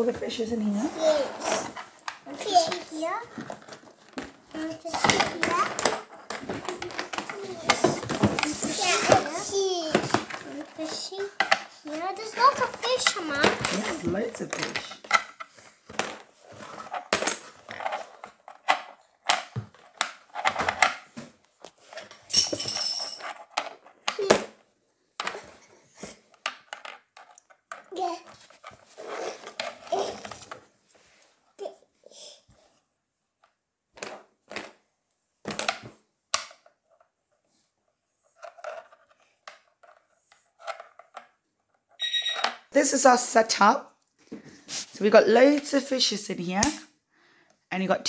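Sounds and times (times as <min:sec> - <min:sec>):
wooden pieces clacking on board: 0:02.0 - 0:21.2, 0:26.3 - 0:28.8, 0:33.4 - 0:34.8, 0:35.4 - 0:37.1, 0:38.4 - 0:42.6
shrill squeak: 0:42.0 - 0:42.6.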